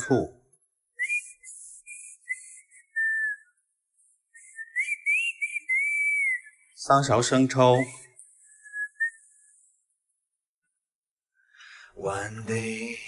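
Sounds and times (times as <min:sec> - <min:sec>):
person whistling a tune: 0:01.0 - 0:03.6, 0:04.3 - 0:06.7, 0:08.0 - 0:09.6.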